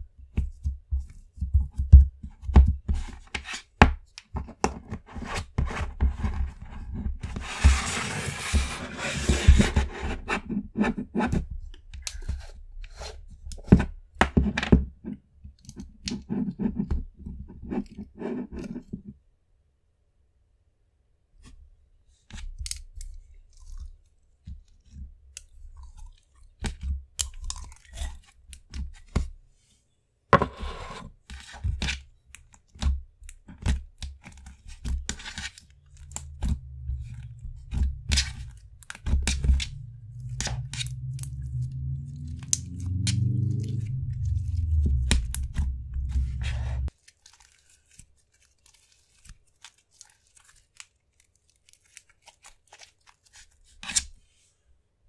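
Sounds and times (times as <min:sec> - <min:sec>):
low rumble: 0:35.8 - 0:46.9.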